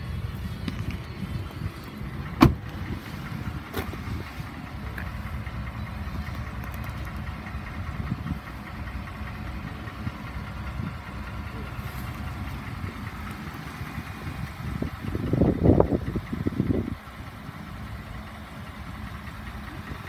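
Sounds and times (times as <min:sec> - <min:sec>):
steady low rumble: 0:00.0 - 0:20.0
truck door shutting: 0:02.4 - 0:03.0.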